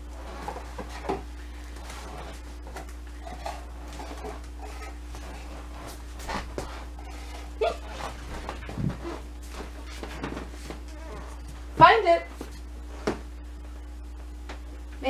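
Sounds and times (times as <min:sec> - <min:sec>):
steady low hum: 0:00.0 - 0:15.0
footsteps: 0:03.9 - 0:07.0, 0:07.8 - 0:13.3.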